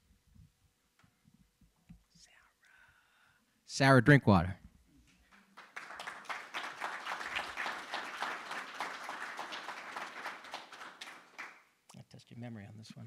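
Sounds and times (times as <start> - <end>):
audience applauding: 5.3 - 11.7.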